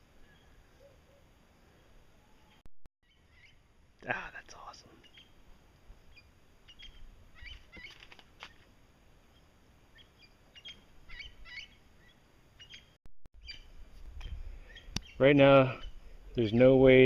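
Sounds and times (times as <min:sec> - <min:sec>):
birds chirping: 0:00.1 - 0:05.4, 0:06.0 - 0:08.7, 0:09.3 - 0:17.0.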